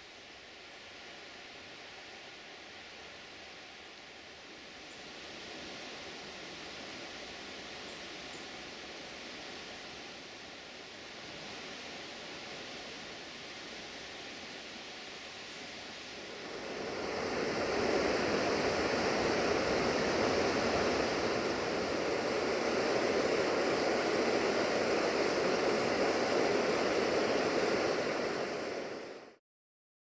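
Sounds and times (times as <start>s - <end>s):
small waterfall splashing: 8.6s - 29.1s.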